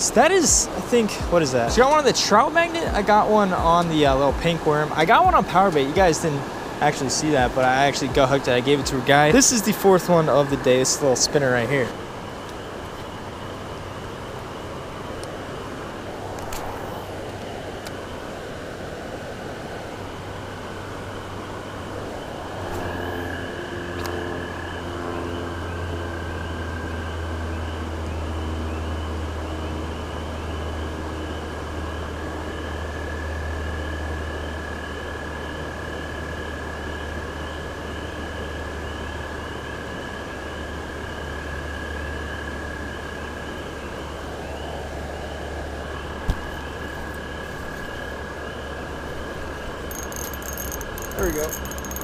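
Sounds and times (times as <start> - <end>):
frogs calling: 32.0 - 52.0.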